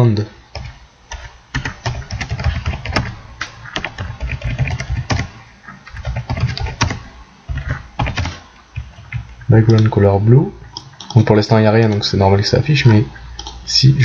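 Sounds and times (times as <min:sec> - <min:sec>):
typing on computer keyboard: 0:00.5 - 0:09.9.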